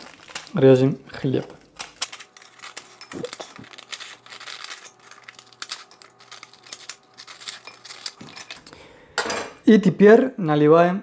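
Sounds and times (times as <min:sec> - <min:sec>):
bread crust crunching: 0:00.0 - 0:08.7.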